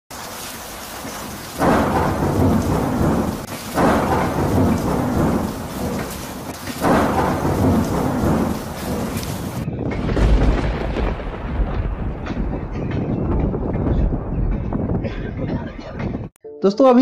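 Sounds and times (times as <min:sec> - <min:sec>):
rain hissing: 0:00.1 - 0:09.6
thunder claps rumbling: 0:00.1 - 0:16.3.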